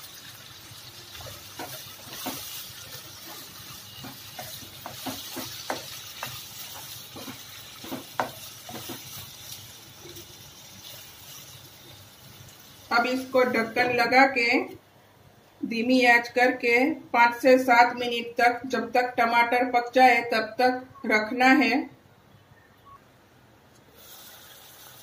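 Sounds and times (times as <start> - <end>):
vegetables sizzling in oil: 0.0 - 14.4, 24.0 - 25.0
spatula scraping frying pan: 1.0 - 10.3.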